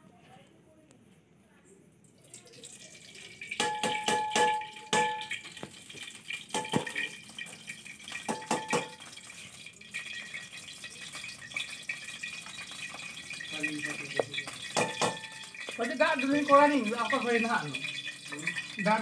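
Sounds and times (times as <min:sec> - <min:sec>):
hiss and crackle of cooking: 0:01.7 - 0:19.0
pot lid clinking: 0:03.4 - 0:05.7, 0:06.3 - 0:09.4, 0:10.0 - 0:18.9.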